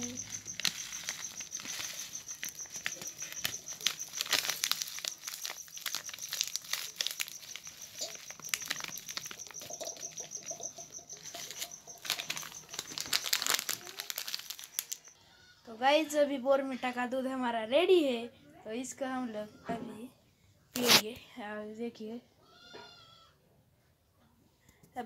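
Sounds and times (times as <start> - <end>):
plastic pouch crinkling: 0.0 - 15.1
pulsing high-pitched chirring: 0.0 - 15.2.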